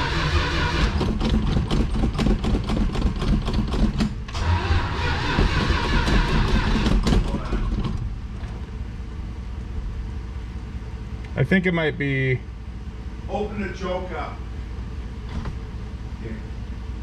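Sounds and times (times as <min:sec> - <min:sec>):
starter cranking engine: 0:00.0 - 0:08.1.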